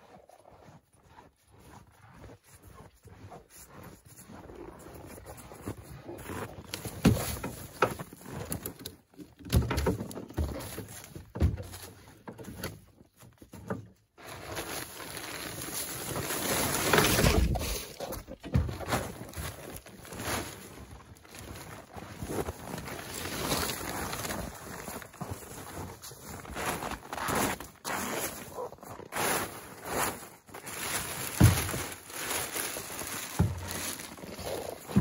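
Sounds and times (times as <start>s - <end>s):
boots crunching in snow: 0.0s - 8.5s, 14.2s - 35.0s
plastic tarp rustling: 14.2s - 25.2s, 28.6s - 35.0s.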